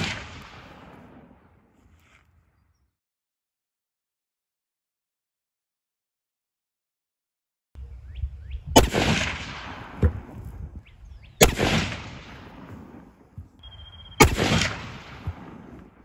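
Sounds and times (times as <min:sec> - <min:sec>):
rifle shots with echo: 0:00.0 - 0:01.7, 0:08.7 - 0:16.0.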